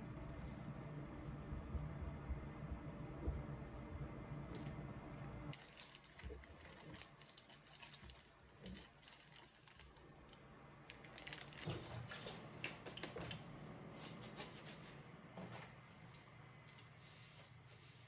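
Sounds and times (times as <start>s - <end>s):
plastic bags crinkling: 5.5s - 12.1s.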